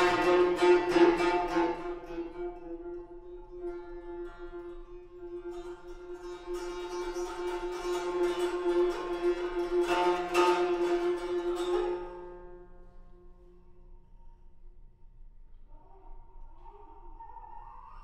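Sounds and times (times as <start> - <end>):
zither rapid plucking: 0.0 - 12.8.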